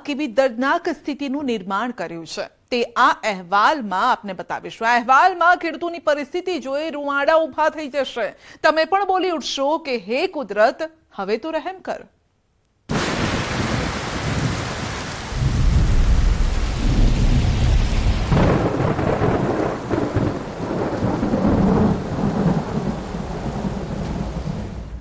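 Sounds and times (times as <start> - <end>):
deep rolling thunder: 12.9 - 25.0
heavy rain pouring: 12.9 - 25.0.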